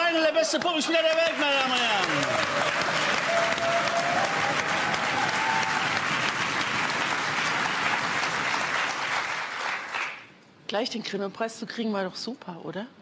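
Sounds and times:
audience applauding: 0:00.6 - 0:10.3.

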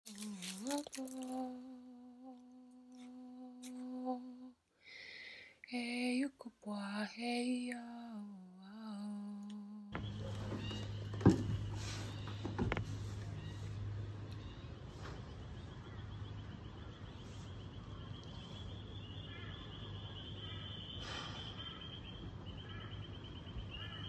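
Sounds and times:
person humming a slow tune: 0:00.1 - 0:04.6, 0:05.7 - 0:10.5
low electrical hum: 0:00.1 - 0:24.0.

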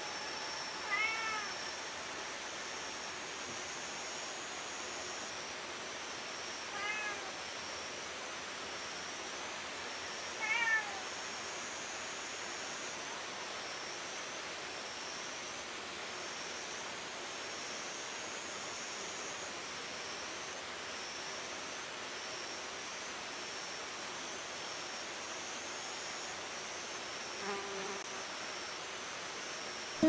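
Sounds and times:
cat meowing: 0:00.8 - 0:01.5, 0:06.7 - 0:07.3, 0:10.4 - 0:11.0.

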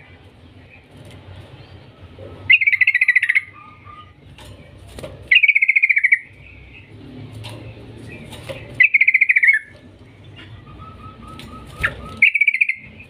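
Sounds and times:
bird singing bubbling trills: 0:08.8 - 0:13.0.

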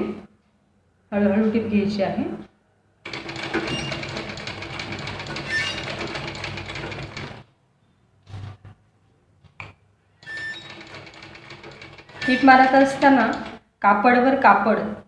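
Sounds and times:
sewing machine stitching: 0:03.0 - 0:07.4, 0:10.2 - 0:13.6.

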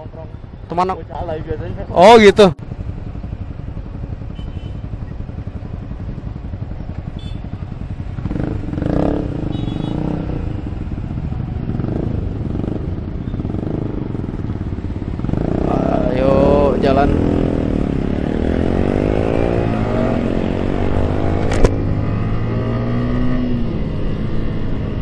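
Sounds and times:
motorcycle engines idling in traffic: 0:00.0 - 0:18.9
motorcycle revving: 0:00.0 - 0:25.0
motorcycle engine idling: 0:02.6 - 0:16.2.

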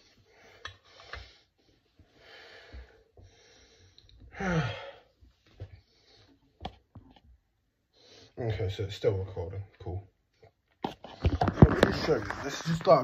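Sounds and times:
man breathing heavily: 0:00.0 - 0:06.6
man sighing: 0:04.3 - 0:05.1.

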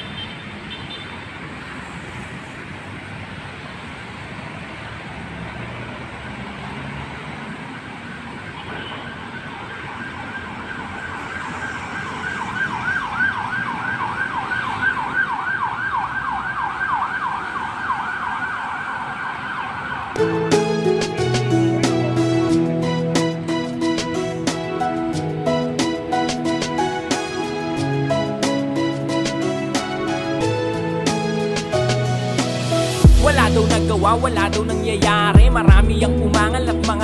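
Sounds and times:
road traffic noise: 0:00.0 - 0:37.0
siren yelping: 0:08.0 - 0:20.3
music: 0:20.2 - 0:37.0.

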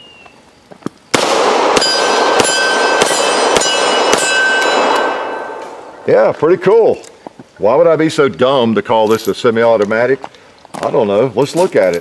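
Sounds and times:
steel targets ringing: 0:01.3 - 0:06.1.

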